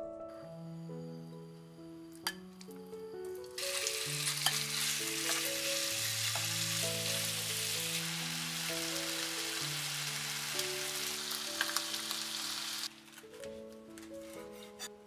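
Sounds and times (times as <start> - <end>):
soft piano background music: 0.0 - 15.0
chicken sizzling in oil: 3.5 - 13.1.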